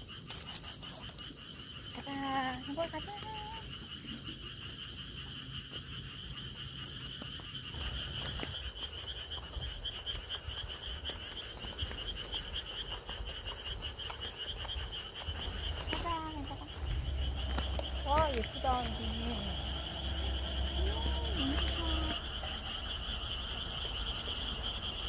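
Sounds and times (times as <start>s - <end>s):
chorus of frogs trilling: 0.0s - 25.0s
low rumble: 14.9s - 24.2s.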